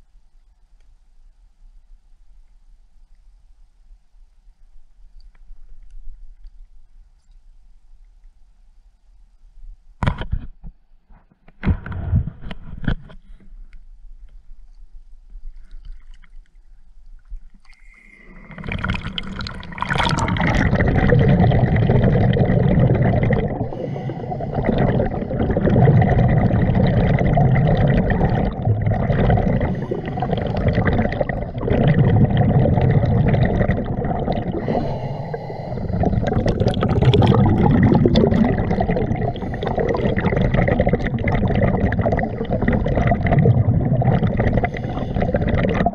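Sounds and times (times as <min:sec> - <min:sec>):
diver breathing underwater: 0:17.8 - 0:45.9
exhaled bubbles underwater: 0:17.8 - 0:45.9.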